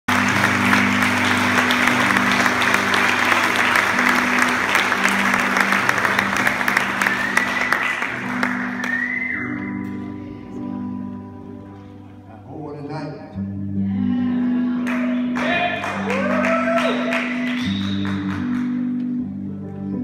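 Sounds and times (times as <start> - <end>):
audience applauding: 0.0 - 9.8, 14.8 - 19.2
guitar notes: 0.1 - 20.0.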